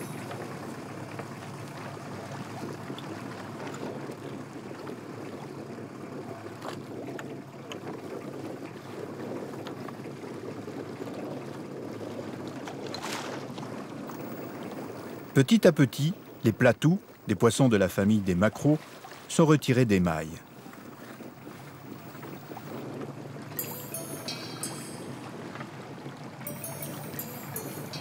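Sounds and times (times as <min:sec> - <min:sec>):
choppy water around boat: 0:00.0 - 0:28.0
wind: 0:00.0 - 0:28.0
steady low hum: 0:14.1 - 0:17.9.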